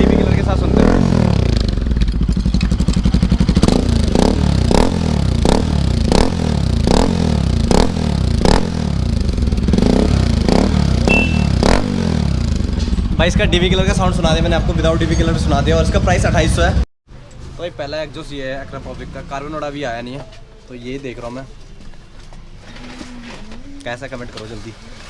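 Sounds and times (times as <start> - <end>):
motorcycle engine running: 0.0 - 16.2.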